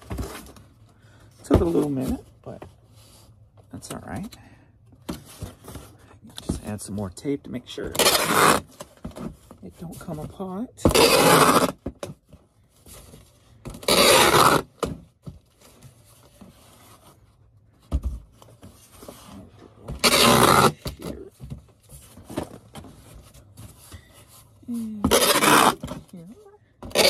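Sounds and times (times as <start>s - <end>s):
packing tape ripping: 8.0s - 8.7s, 10.9s - 11.8s, 13.8s - 14.7s, 20.0s - 20.8s, 25.1s - 25.9s.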